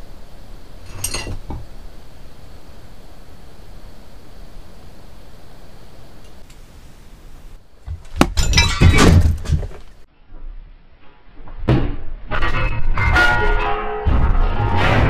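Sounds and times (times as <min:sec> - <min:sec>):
glassy object crashing and clattering: 0:00.9 - 0:01.4, 0:08.3 - 0:09.5.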